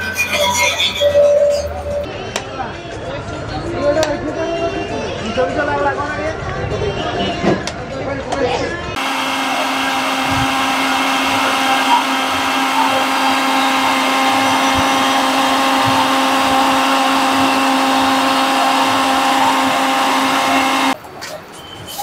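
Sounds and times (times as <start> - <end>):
electric blender running: 9.0 - 21.0.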